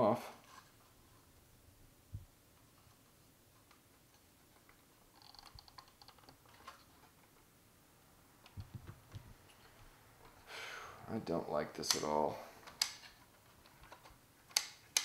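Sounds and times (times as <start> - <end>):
fingers clicking wire clips: 13.8 - 15.0.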